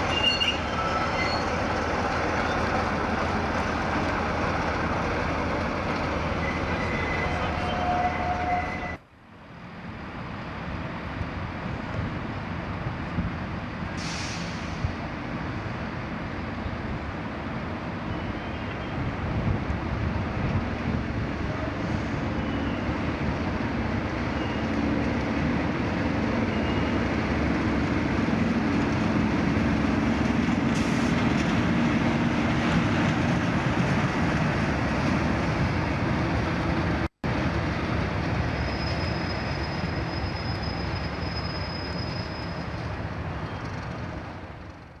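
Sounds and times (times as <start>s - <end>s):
train wheel noise: 0.0s - 9.0s, 19.3s - 45.0s
diesel locomotive engine hum: 0.0s - 45.0s.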